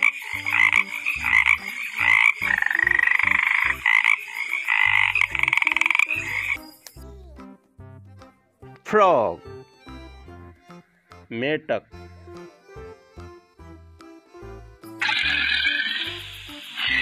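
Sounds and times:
frogs croaking: 0:00.0 - 0:06.8, 0:15.0 - 0:17.0
rapidly pulsing frog trills: 0:00.0 - 0:06.8, 0:15.0 - 0:17.0.

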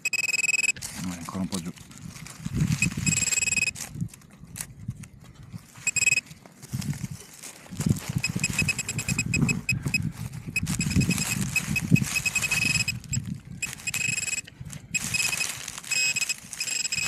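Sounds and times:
metal detector beeping: 0:00.0 - 0:00.8, 0:02.7 - 0:03.8, 0:05.8 - 0:06.3, 0:08.1 - 0:17.0.

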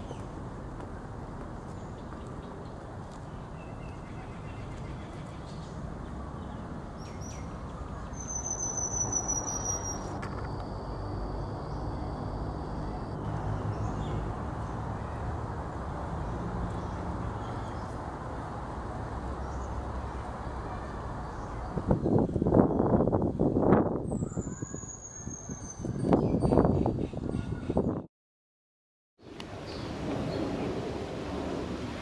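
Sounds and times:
bird whistled call: 0:08.1 - 0:10.1, 0:24.1 - 0:25.9.

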